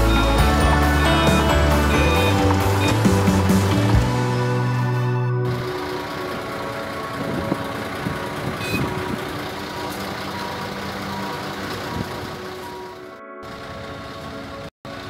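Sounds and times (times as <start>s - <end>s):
forklift engine running: 0.0s - 15.0s
faint repeating beep: 8.6s - 9.0s.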